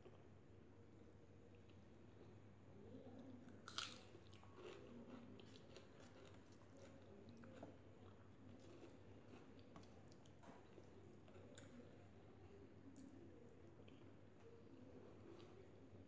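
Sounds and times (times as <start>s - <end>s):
person chewing food: 3.5s - 12.0s.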